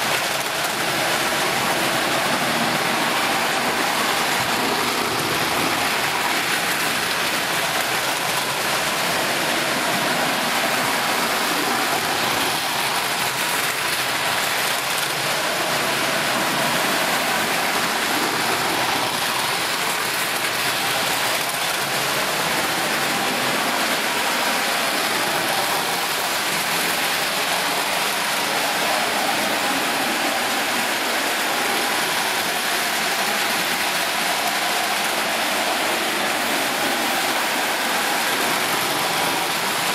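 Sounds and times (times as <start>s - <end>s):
model trains whirring on track: 0.0s - 39.9s.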